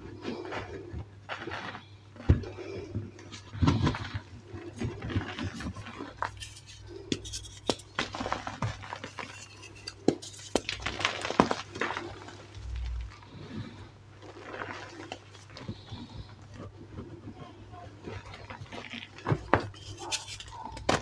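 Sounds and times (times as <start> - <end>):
chalk crunching and crackling: 0.0 - 21.0
low steady hum: 0.0 - 21.0.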